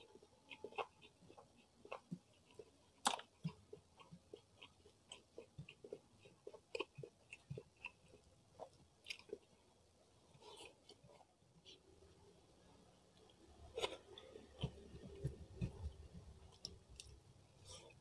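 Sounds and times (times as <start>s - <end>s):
close chewing mouth clicks: 0.1s - 9.5s.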